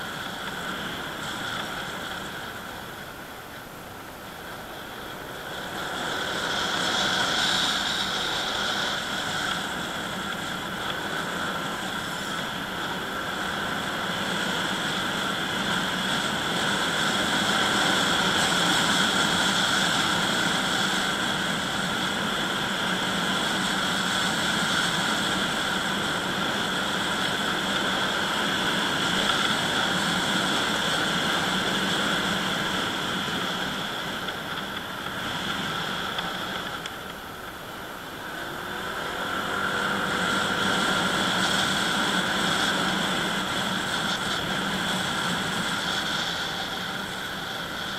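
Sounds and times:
vehicle engine running: 0.0s - 47.9s
wind and road noise: 0.0s - 47.9s.

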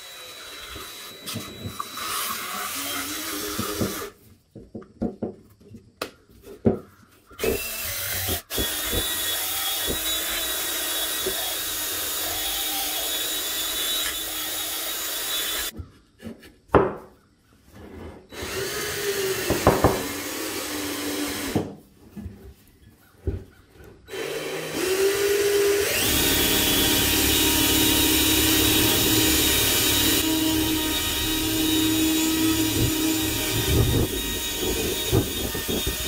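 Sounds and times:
cordless drill scraping whir: 0.0s - 4.2s, 7.4s - 15.7s, 18.3s - 21.6s, 24.1s - 36.0s.

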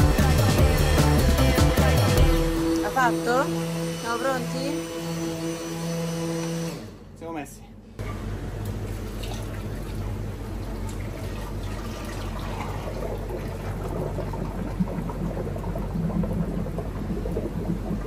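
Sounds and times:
low machine hum: 0.0s - 18.0s
thick liquid pouring: 9.0s - 18.0s.

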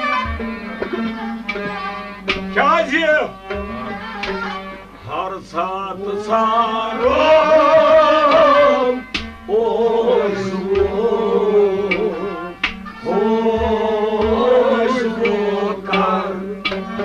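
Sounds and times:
hand-drum strokes: 0.0s - 17.0s
steady drone: 0.0s - 17.0s
man singing: 5.0s - 17.0s.

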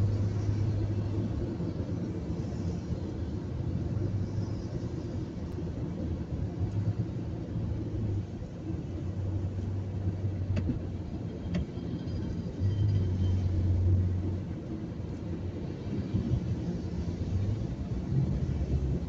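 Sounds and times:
car engine and tyres on wet road: 0.0s - 19.0s.

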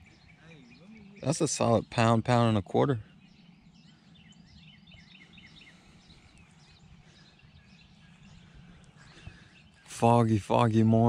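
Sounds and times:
faint bird chirps: 0.0s - 11.0s.

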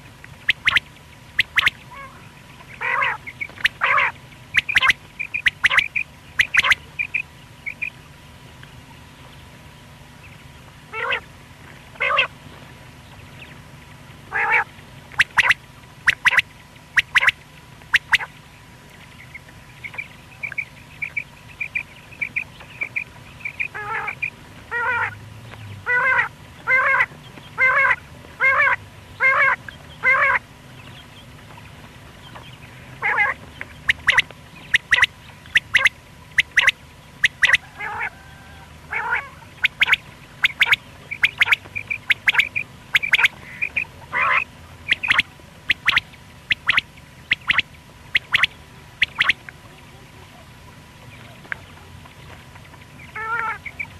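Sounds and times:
quail rasping calls: 0.0s - 8.0s, 10.9s - 11.3s, 11.9s - 12.4s, 14.3s - 18.4s, 19.2s - 25.2s, 25.8s - 31.4s, 32.2s - 49.5s, 50.3s - 53.9s
faint steady hum: 0.0s - 53.9s
sharp clicky high calls: 3.7s - 7.2s, 39.6s - 49.4s.

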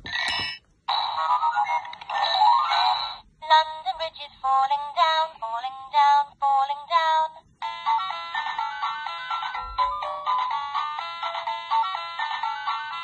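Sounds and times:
recorded toy voice: 0.9s - 7.9s
toy tune from tinny speaker: 7.6s - 13.0s.

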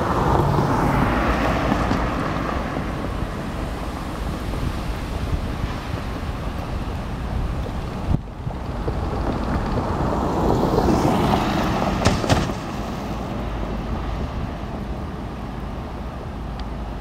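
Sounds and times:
wind on microphone: 0.0s - 16.8s
sharp knocks: 12.0s - 12.7s.

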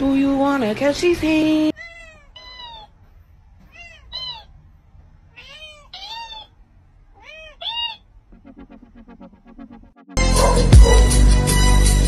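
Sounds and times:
cat meowing: 1.7s - 4.6s, 5.3s - 8.2s.

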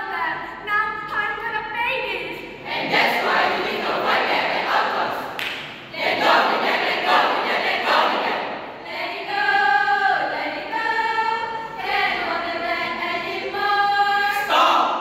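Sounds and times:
group chanting together: 2.5s - 15.0s
group singing in unison: 2.6s - 15.0s.

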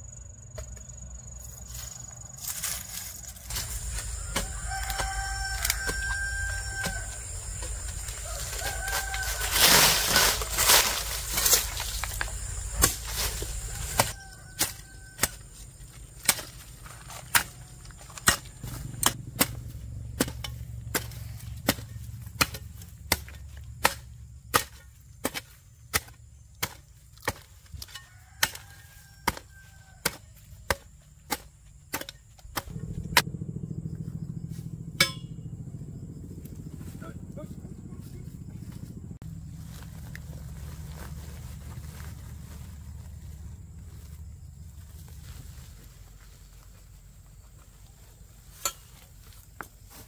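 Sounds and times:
low steady rumble: 1.4s - 26.4s, 32.4s - 48.4s.

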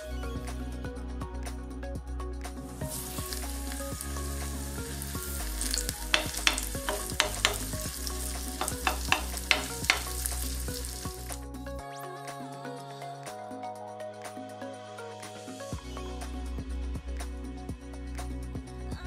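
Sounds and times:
potato sizzling in hot oil: 2.8s - 11.4s
spitting oil crackles: 2.8s - 11.4s.

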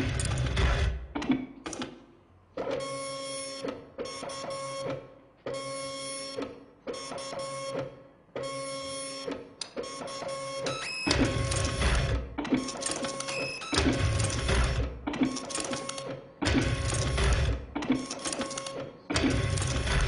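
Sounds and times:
dot-matrix printer buzzing music: 10.2s - 20.0s.

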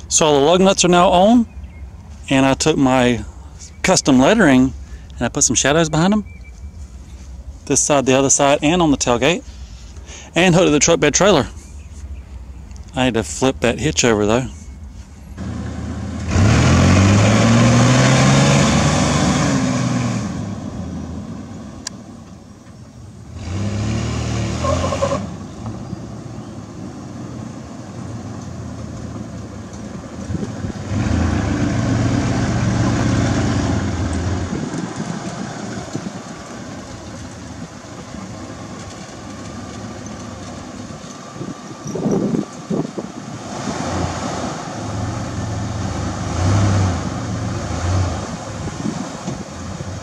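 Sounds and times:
truck engine revving: 12.9s - 22.0s, 23.2s - 50.0s.

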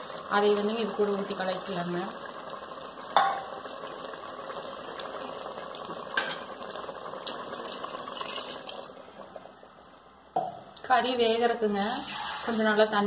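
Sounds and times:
cooking hiss: 0.0s - 13.0s.

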